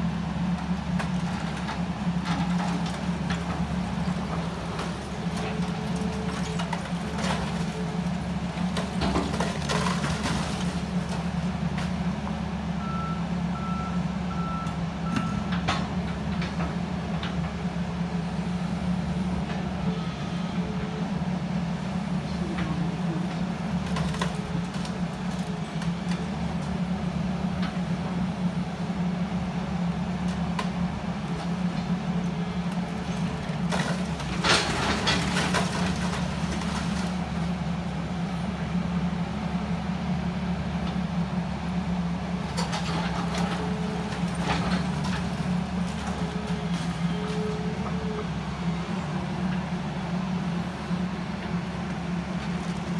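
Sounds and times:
excavator diesel engine running: 0.0 - 52.9
bricks crumbling and clattering: 33.2 - 37.4.

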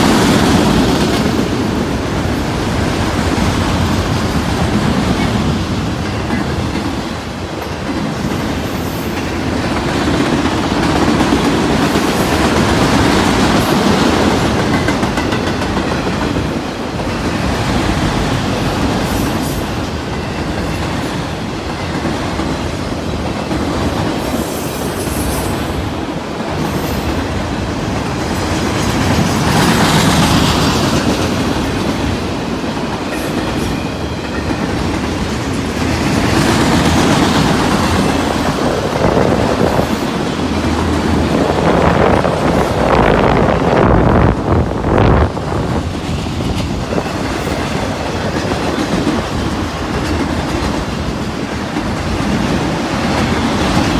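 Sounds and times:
freight train wheels rumbling: 0.0 - 53.9.

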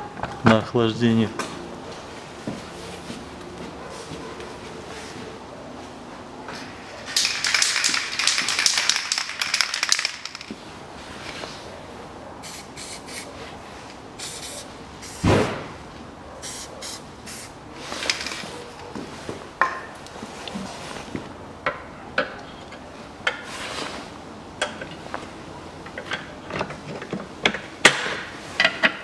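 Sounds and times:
aerosol can spraying: 14.2 - 15.2, 16.4 - 17.5.

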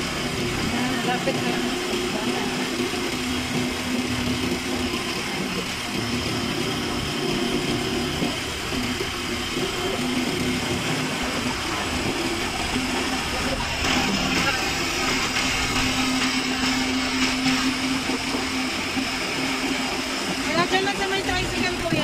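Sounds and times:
vehicle engine running: 0.0 - 22.0.

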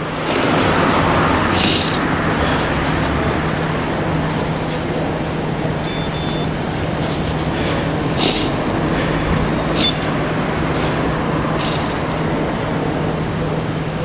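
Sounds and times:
road and wind noise: 0.0 - 14.0
short high beep: 5.8 - 6.5.

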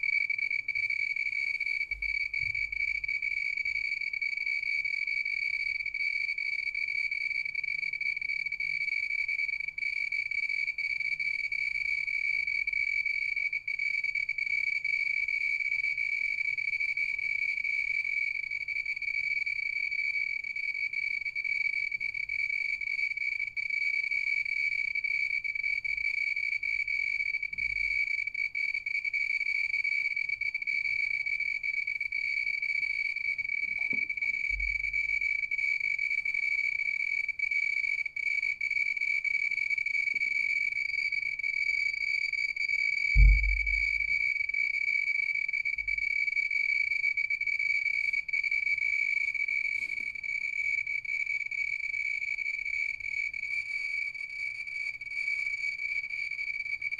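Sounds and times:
low thump: 43.2 - 44.1.

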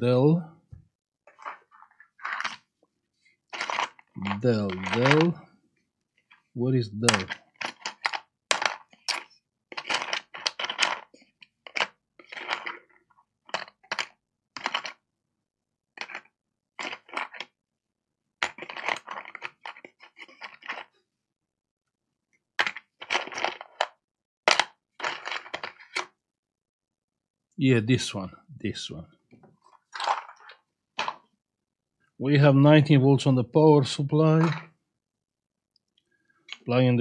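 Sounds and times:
small connectors clattering: 3.5 - 5.4.

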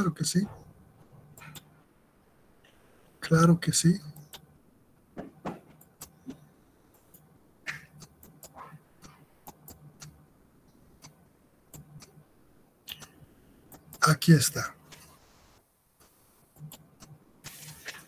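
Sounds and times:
computer mouse clicking: 5.8 - 10.2, 16.5 - 17.2.

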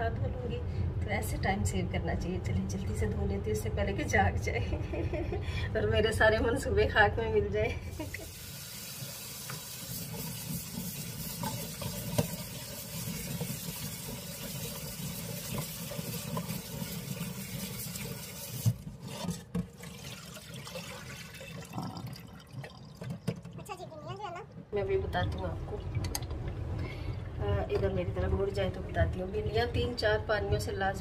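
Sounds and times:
tap running into a sink: 8.1 - 23.7.

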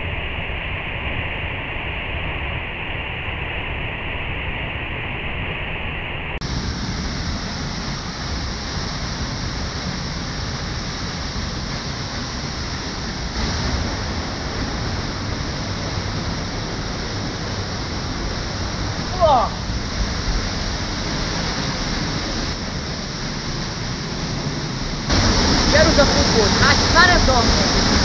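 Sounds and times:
waterfall rushing and splashing: 6.4 - 28.0.

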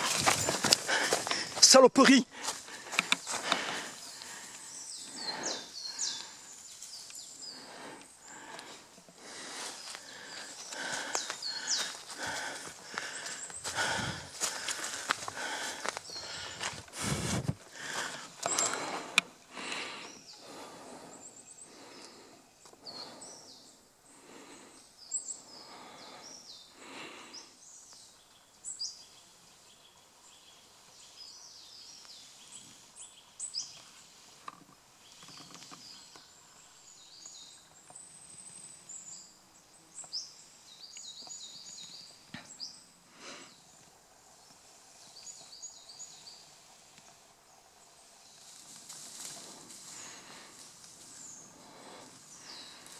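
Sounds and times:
footsteps through dry leaves: 0.0 - 1.6, 10.9 - 18.1
small birds chirping: 0.0 - 52.9.

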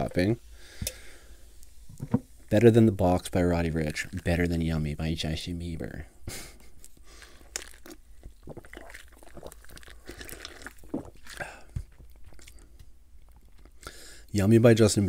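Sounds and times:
sips and swallows: 6.8 - 12.7
crunchy mouth sounds: 6.8 - 14.0.

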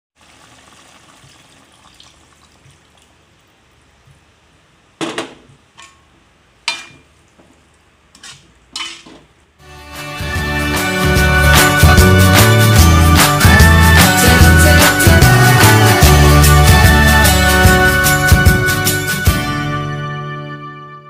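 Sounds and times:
metal spatula clinking on wok: 6.6 - 7.1, 8.2 - 9.1
music: 9.6 - 21.0.

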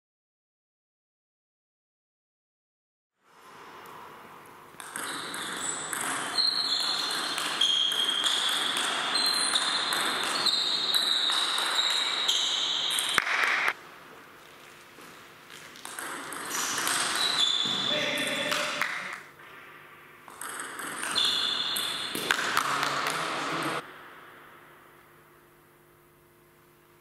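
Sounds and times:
table tennis ball clicking: 4.8 - 10.4, 20.3 - 21.2
sharp table tennis hit: 4.8 - 13.8, 15.8 - 24.3.

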